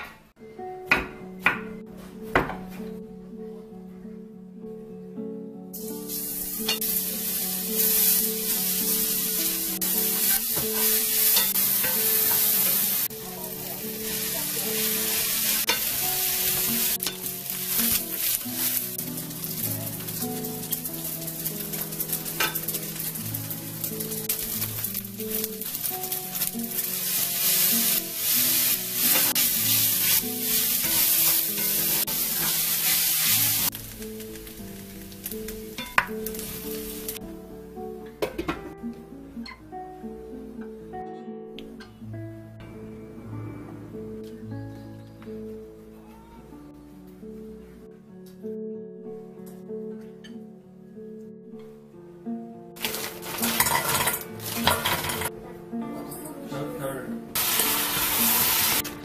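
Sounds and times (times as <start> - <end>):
soft guitar music: 0.0 - 59.0
vegetables sizzling in oiled pan: 5.8 - 37.2, 52.8 - 55.3, 57.4 - 59.0.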